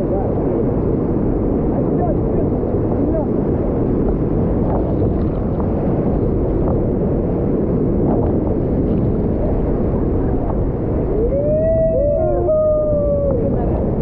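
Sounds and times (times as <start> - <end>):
person whooping: 11.1 - 13.5.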